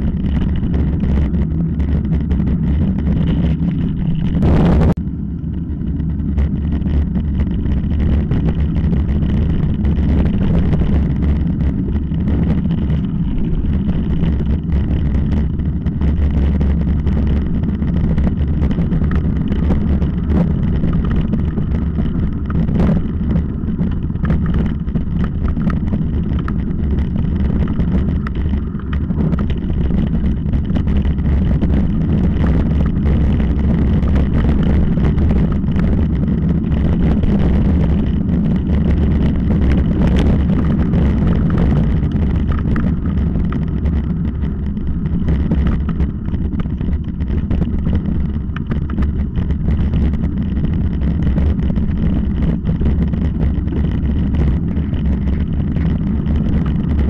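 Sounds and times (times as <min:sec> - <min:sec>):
wind rumble on microphone: 0:00.0 - 0:57.0
bike clattering over rough ground: 0:05.6 - 0:57.0.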